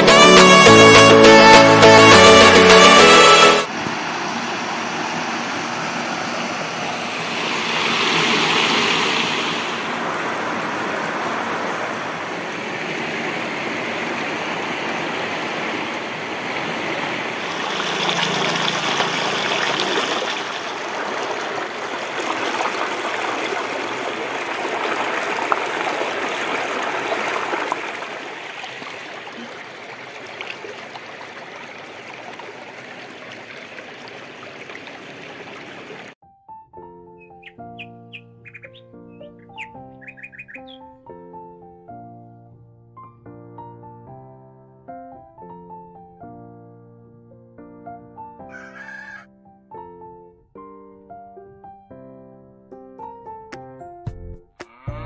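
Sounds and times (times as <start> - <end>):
stream pouring over rocks: 3.6 - 36.2.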